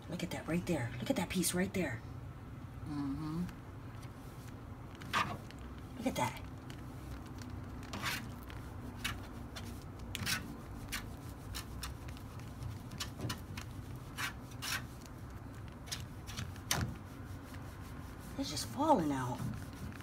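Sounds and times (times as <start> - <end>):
duster scraping plastic grille: 7.8 - 20.0.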